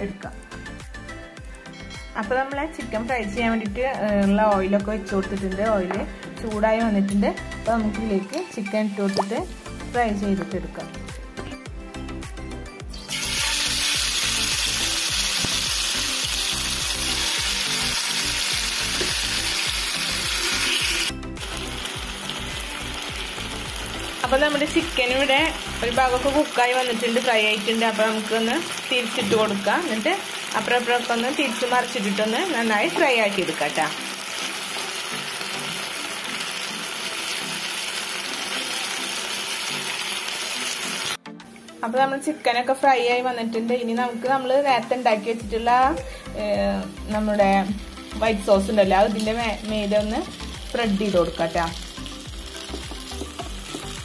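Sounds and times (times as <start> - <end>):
chicken sizzling in hot oil: 12.9 - 41.2, 44.6 - 54.0.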